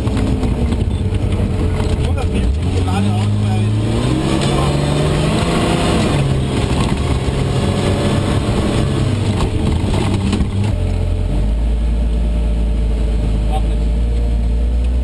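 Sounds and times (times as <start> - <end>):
knocks and rattles: 0.0 - 3.4, 6.2 - 10.9
vehicle engine running: 0.0 - 15.0.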